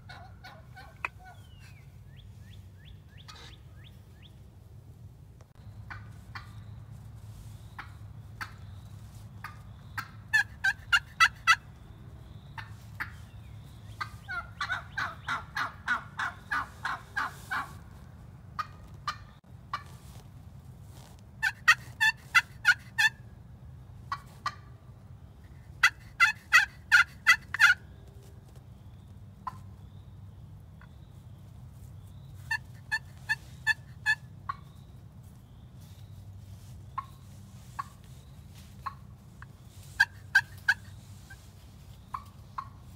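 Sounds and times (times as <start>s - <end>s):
turkey yelping: 0.0s - 1.8s, 3.2s - 3.6s, 10.0s - 11.6s, 14.0s - 17.8s, 21.4s - 23.2s, 25.8s - 27.8s, 32.5s - 34.7s, 38.8s - 39.0s, 40.0s - 41.3s, 42.1s - 42.8s
turkey clucks: 0.0s - 4.3s, 5.8s - 6.6s, 7.8s - 8.8s, 9.4s - 11.7s, 12.6s - 17.8s, 18.6s - 19.9s, 21.4s - 23.2s, 24.1s - 24.7s, 25.4s - 28.3s, 29.4s - 29.8s, 32.4s - 34.8s, 36.6s - 42.9s.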